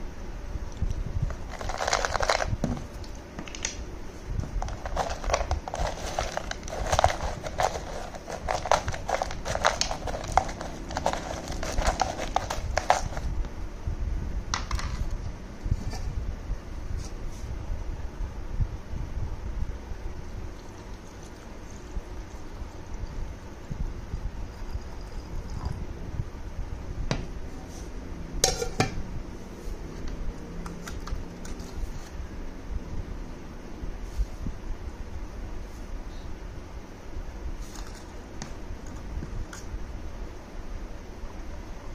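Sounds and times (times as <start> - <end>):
spoon stirring oats in plastic jar: 4.6 - 13.2
utensils clinking on a countertop: 28.4 - 29.0.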